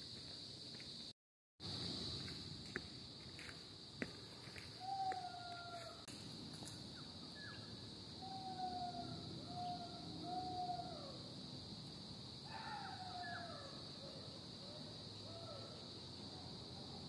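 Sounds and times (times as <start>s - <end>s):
high insect drone: 0.0s - 17.0s
distant animal calls: 4.8s - 6.0s, 7.3s - 11.2s, 12.5s - 15.9s.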